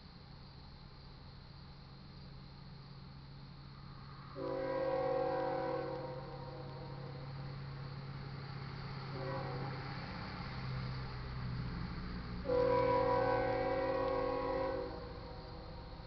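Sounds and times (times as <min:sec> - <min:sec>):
locomotive air horn: 0:04.4 - 0:07.2, 0:09.1 - 0:09.8, 0:12.4 - 0:16.0.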